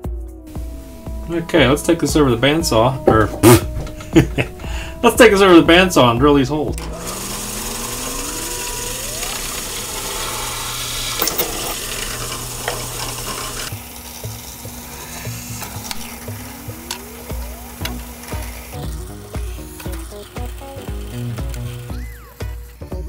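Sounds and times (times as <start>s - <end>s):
drill press whining: 0.5s - 23.0s
metal strip scraping and knocking: 10.1s - 13.7s.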